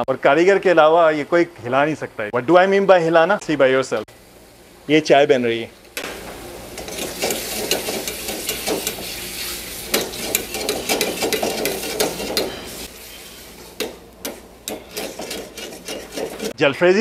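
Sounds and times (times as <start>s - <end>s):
food sizzling in hot oil: 6.0s - 16.5s
metal ladle scraping a pan: 6.8s - 16.6s.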